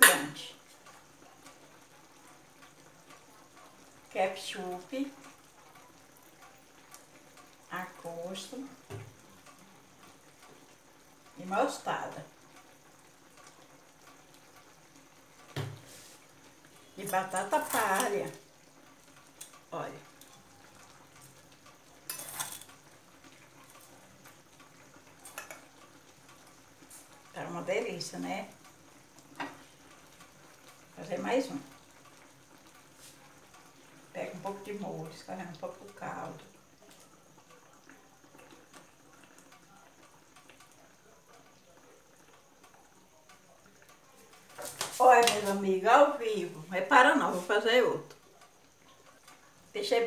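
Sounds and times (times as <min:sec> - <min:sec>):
sauce bubbling in frying pan: 0:00.0 - 0:50.0.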